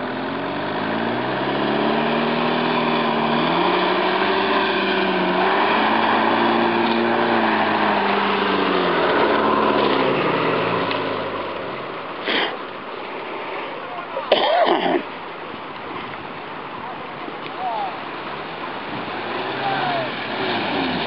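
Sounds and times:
engine revving: 0.0s - 12.0s, 18.6s - 21.0s
water splashing: 0.0s - 21.0s.

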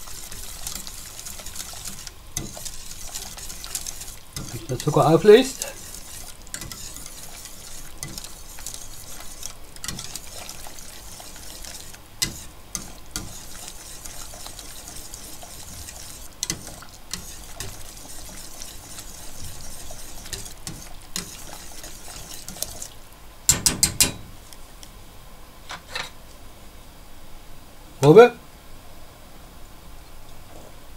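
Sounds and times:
whisk swishing in a pot: 0.0s - 23.0s
sharp knocks: 23.5s - 24.3s.

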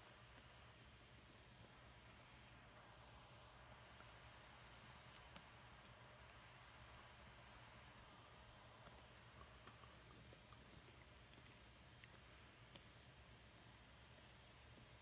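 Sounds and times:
pen nib scratching on screen: 2.2s - 8.1s.

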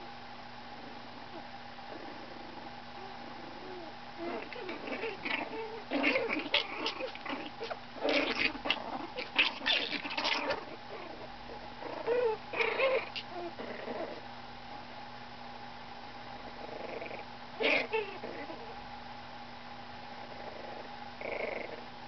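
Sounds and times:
puppies whimpering and squeaking: 3.0s - 14.2s, 17.6s - 18.8s.

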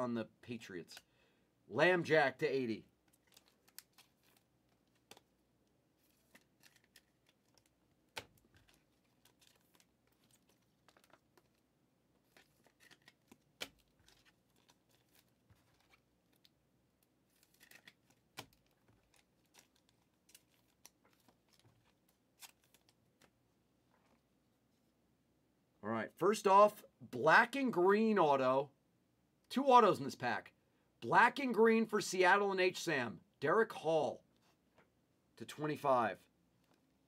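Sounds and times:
foil card pack rustling: 3.0s - 5.4s, 6.0s - 16.6s, 17.2s - 23.3s.

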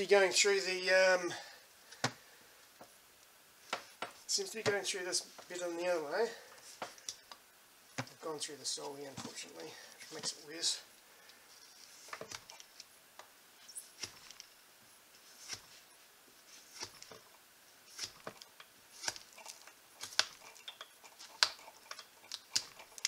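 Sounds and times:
knife scraping rubber sole: 13.6s - 14.5s, 15.2s - 17.3s, 17.9s - 23.0s.

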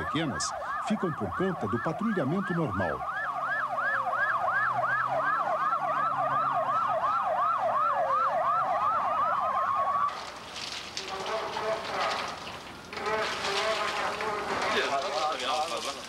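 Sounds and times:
police siren yelping: 0.0s - 10.2s
siren wailing: 0.0s - 10.2s.

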